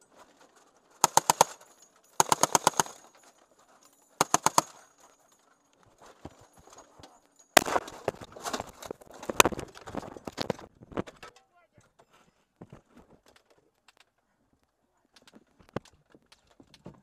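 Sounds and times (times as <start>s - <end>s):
automatic gunfire bursts: 1.0s - 1.6s, 2.2s - 3.0s, 4.2s - 4.8s
loud cracks and clatter: 1.0s - 3.2s, 4.2s - 5.0s, 7.6s - 11.3s.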